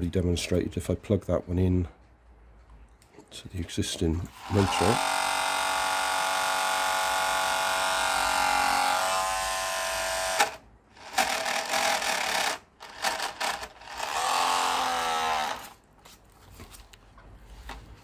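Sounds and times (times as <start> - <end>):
small electric motor whining: 4.4 - 15.8.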